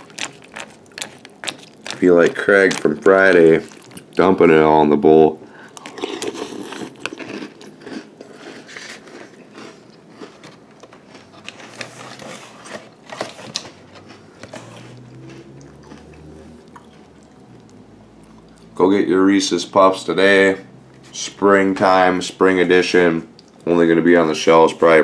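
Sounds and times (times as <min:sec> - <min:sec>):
crunchy cereal being chewed: 0:00.0 - 0:04.4, 0:05.6 - 0:18.8.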